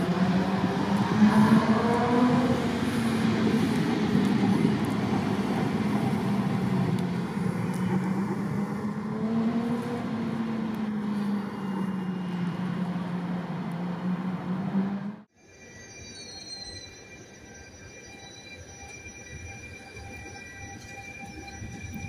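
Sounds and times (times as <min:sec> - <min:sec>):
train wheels rumbling on rail: 0:00.0 - 0:15.2.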